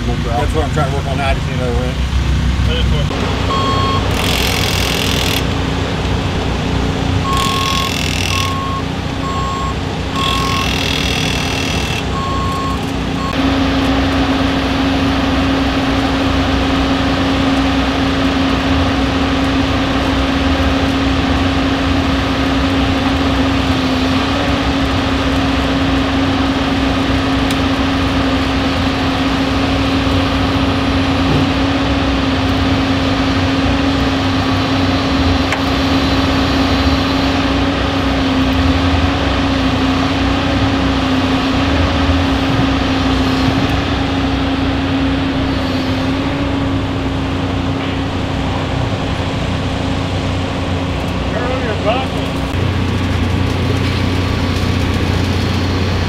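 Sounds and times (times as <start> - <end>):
hum of running machinery: 0.0 - 56.0
vehicle reversing alarm beeping: 3.4 - 5.4, 7.2 - 13.5.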